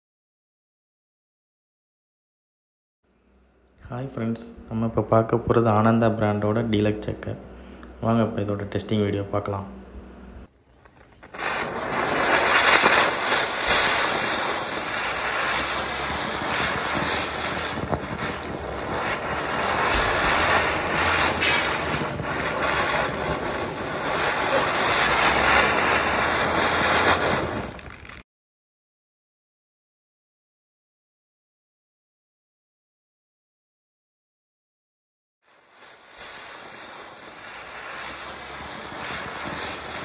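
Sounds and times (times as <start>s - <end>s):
firework crackles: 4.2s - 28.2s, 35.4s - 40.0s
firework hissing: 9.9s - 28.2s, 35.4s - 40.0s.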